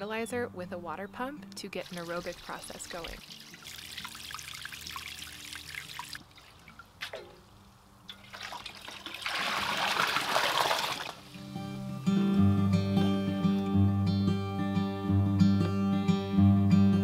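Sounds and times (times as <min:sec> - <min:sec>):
water gurgling into can: 0:01.8 - 0:07.4, 0:08.1 - 0:11.3
pump trickling and splashing: 0:01.8 - 0:11.4.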